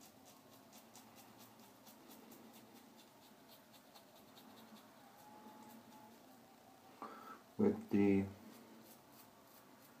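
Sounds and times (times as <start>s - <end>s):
razor scraping stubble: 0.0s - 6.2s, 8.4s - 10.0s.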